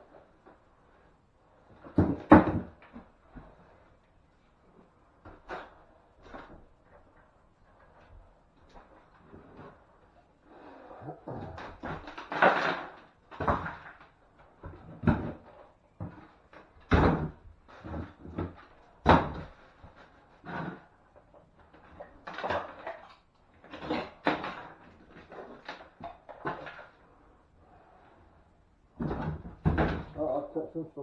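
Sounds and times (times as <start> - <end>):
wooden boards knocking and scraping: 1.7 - 3.6, 11.4 - 21.0, 29.0 - 30.3.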